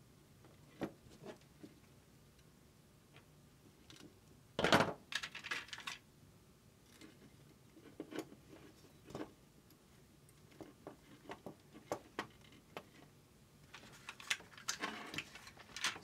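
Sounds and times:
clicks and taps of handling wires: 10.3s - 13.1s.

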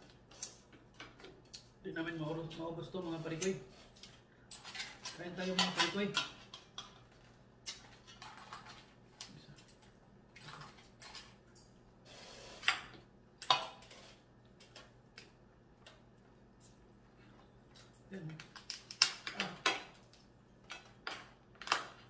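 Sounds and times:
crab shells cracking: 17.8s - 22.0s.

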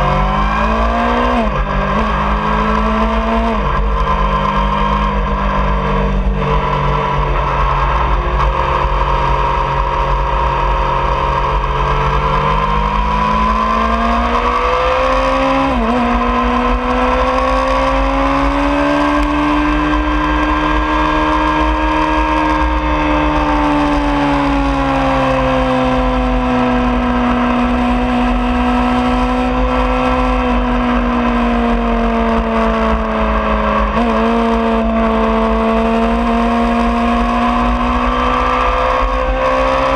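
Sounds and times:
motorcycle engine at high revs: 0.0s - 39.9s.

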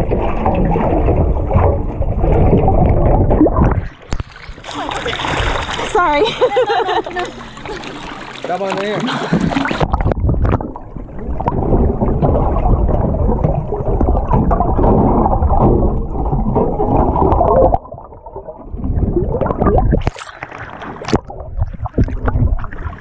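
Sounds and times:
underwater rumble and gurgling: 0.0s - 23.0s
water splashing: 0.0s - 23.0s.

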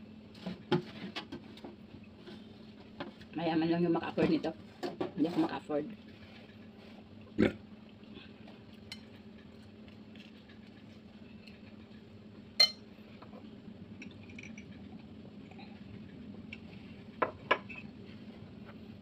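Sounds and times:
low steady hum: 0.0s - 19.0s
tableware clink: 12.6s - 12.8s.

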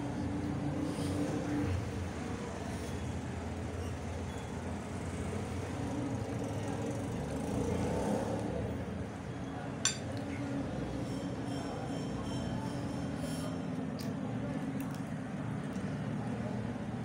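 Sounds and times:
metal spoon clinking on plate: 9.8s - 10.2s.

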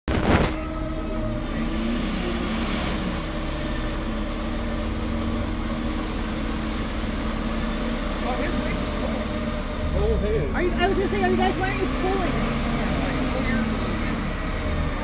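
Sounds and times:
car engine droning: 0.1s - 15.0s.

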